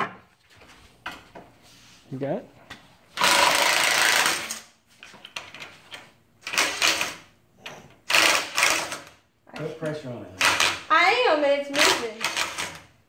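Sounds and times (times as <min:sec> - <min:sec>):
cordless drill running: 0:03.2 - 0:04.6, 0:08.1 - 0:09.1.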